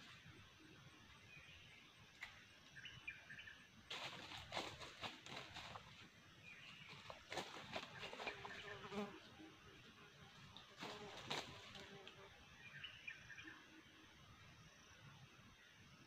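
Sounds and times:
rustling in dry leaves: 3.9 - 8.8, 10.7 - 12.0.

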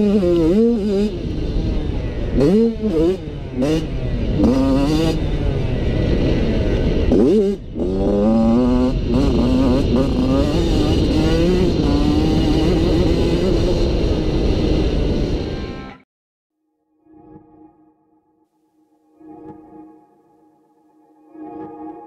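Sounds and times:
motocross bike engine revving: 0.0 - 15.9.

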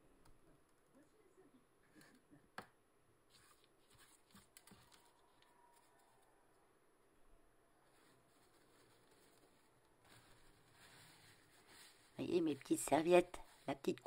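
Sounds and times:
paper rustling: 3.3 - 6.2, 7.9 - 13.7.

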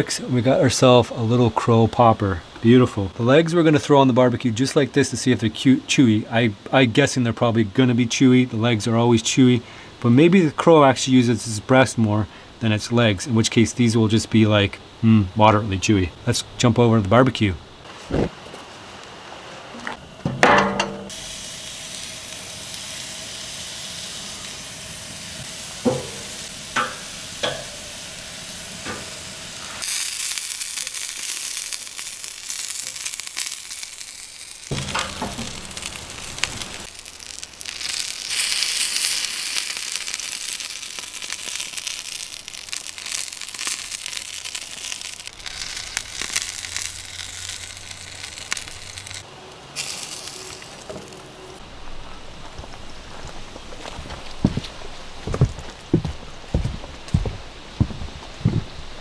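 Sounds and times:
meat sizzling on a grill: 21.0 - 51.6
tongs knocking on grate: 25.9 - 27.8.

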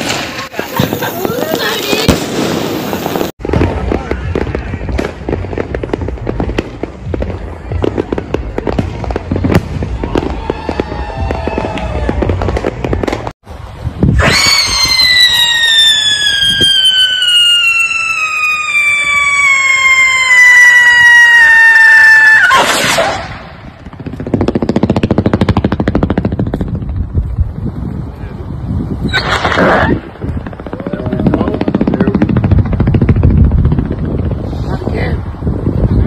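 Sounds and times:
firework burst: 0.0 - 13.3, 14.0 - 27.6
fireworks crackling and popping: 0.0 - 36.0
firework whistle falling in pitch: 14.1 - 22.9.

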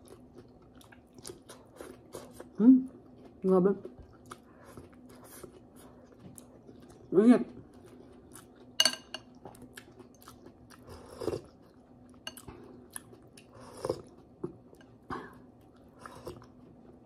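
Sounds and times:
chewing and lip-smacking: 0.0 - 17.0
metal spoon clinking glass bowl: 8.8 - 9.3.

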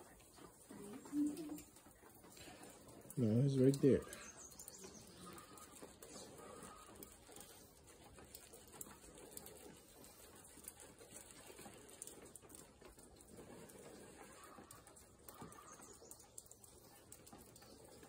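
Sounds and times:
soft bird calls: 2.4 - 7.2, 14.0 - 18.0.

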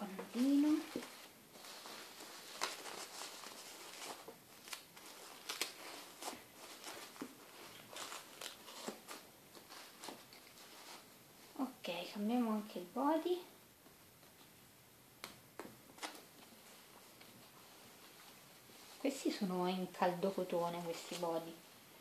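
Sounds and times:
diaper rustling and crinkling: 0.0 - 11.6, 15.9 - 21.6.

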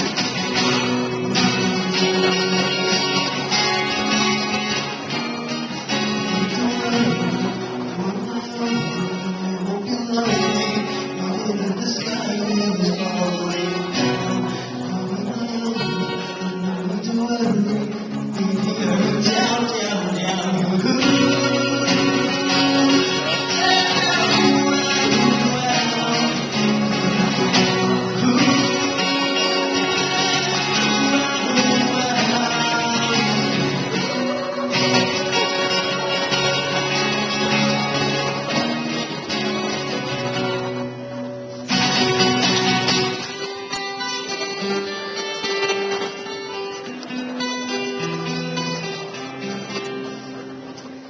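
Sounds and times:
acoustic guitar: 0.0 - 51.0.

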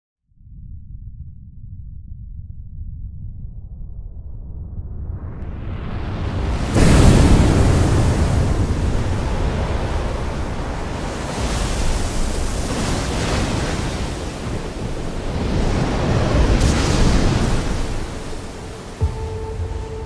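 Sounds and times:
wind: 4.4 - 20.0
heavy waves breaking: 5.6 - 20.0.

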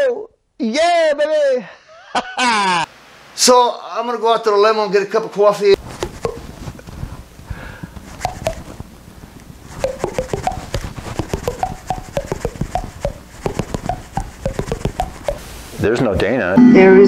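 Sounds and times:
short hollow clicks and pops: 9.8 - 15.4.

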